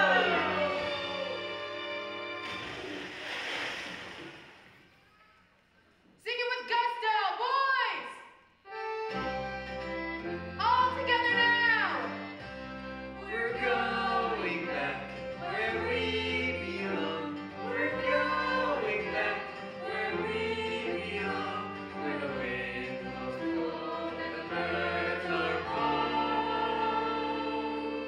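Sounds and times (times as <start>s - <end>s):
choir singing show music: 0.0s - 4.0s, 12.8s - 28.0s.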